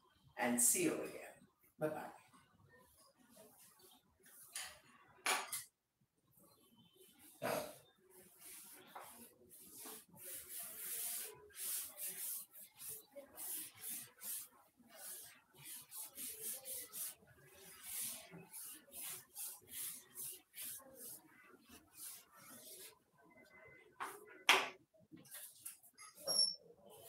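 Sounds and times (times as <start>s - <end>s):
duster rubbing chalkboard: 7.4s - 23.0s.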